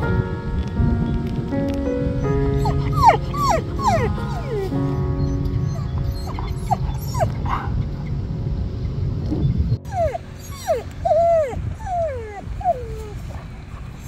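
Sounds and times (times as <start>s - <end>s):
low rumbling noise: 0.0s - 14.0s
dog whimpering: 2.6s - 7.4s, 9.9s - 14.0s.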